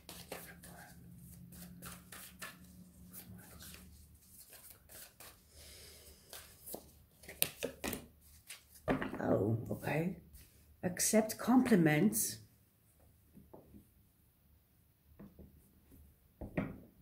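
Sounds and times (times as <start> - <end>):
cards being shuffled by hand: 0.0 - 5.5, 6.1 - 8.9.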